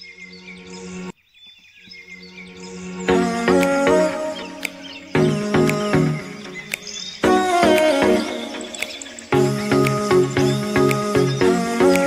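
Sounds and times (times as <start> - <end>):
background music chords: 2.3 - 12.0
sharp clicks: 3.5 - 10.1.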